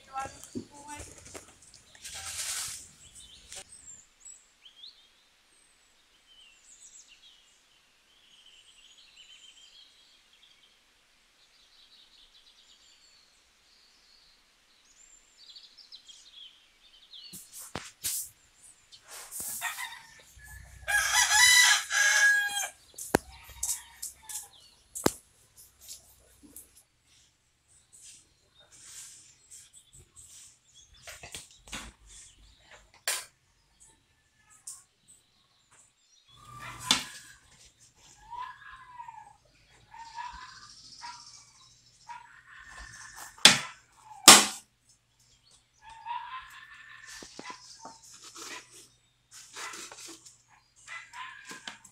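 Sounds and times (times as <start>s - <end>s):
rooster crowing: 19.5s - 22.8s.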